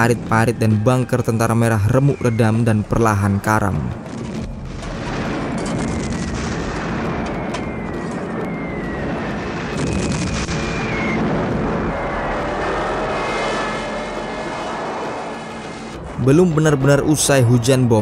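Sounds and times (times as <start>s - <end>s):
rumble of explosions and aircraft: 0.0s - 18.0s
sharp blasts: 4.0s - 16.2s
high whining tones: 5.4s - 17.7s.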